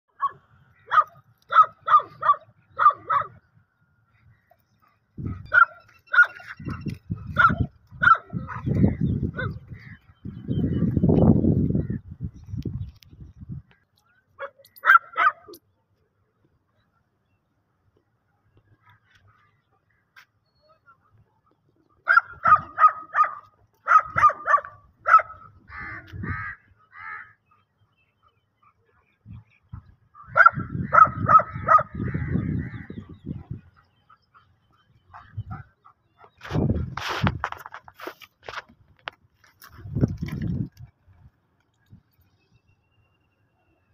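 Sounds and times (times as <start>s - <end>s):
dog barking: 0.2s - 3.4s, 5.3s - 8.8s, 14.4s - 15.5s, 22.0s - 25.5s, 30.3s - 32.0s.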